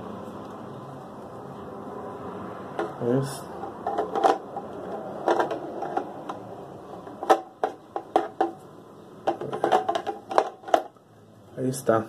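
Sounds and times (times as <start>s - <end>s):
hard plastic clicks and knocks: 9.2s - 10.9s.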